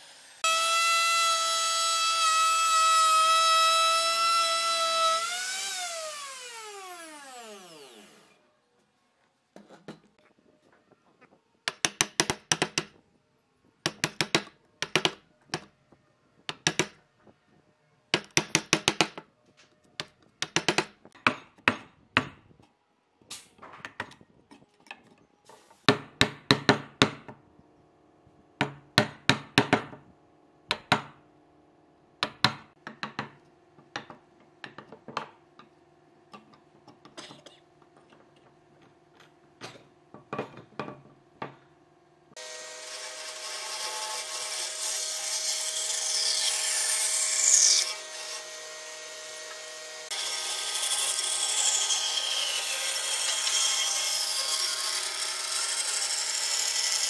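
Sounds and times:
mallet striking chisel into wood: 0:13.9 - 0:15.7, 0:16.5 - 0:17.0.

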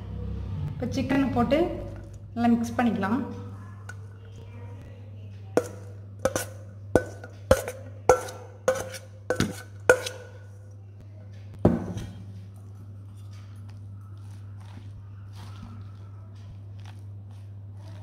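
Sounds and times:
low hum: 0:00.0 - 0:05.2
spoon knocking on steel bowl: 0:05.6 - 0:10.5.

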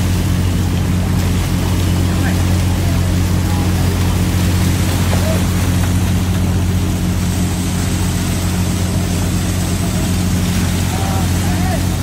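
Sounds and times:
boat engine humming: 0:00.0 - 0:12.0
sea water splashing off net: 0:00.0 - 0:12.0.

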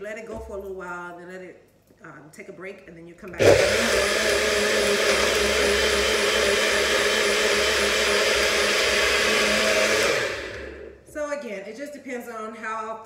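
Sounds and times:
blender running: 0:03.4 - 0:11.1.

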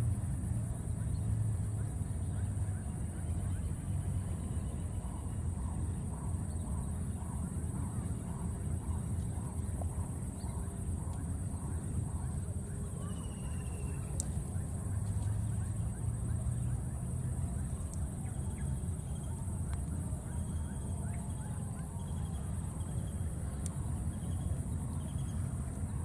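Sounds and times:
faint chirps: 0:02.2 - 0:26.0.

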